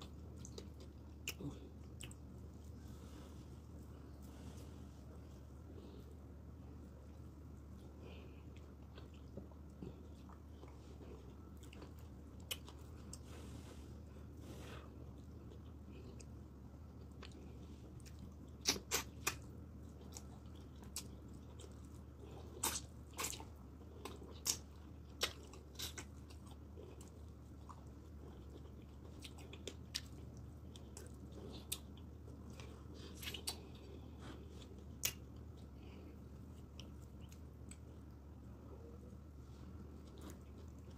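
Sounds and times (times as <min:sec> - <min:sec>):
chewing with smacking clicks: 0:00.0 - 0:02.6, 0:07.0 - 0:13.3, 0:15.0 - 0:39.2
faint low hum: 0:00.0 - 0:40.9.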